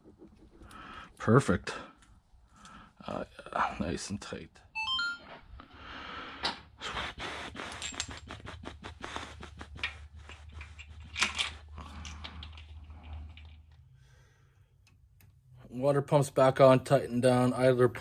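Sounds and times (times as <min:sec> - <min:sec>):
metal parts and tools clicking: 0:07.7 - 0:08.4, 0:10.2 - 0:13.8.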